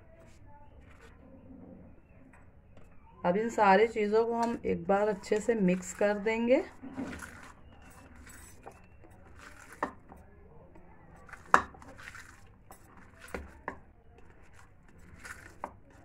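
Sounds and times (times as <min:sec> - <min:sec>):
hand mixing minced meat: 0:03.3 - 0:16.0.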